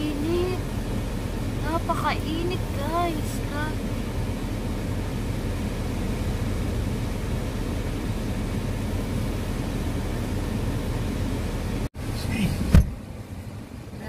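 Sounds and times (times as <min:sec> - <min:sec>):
car engine idling: 0:00.0 - 0:14.0.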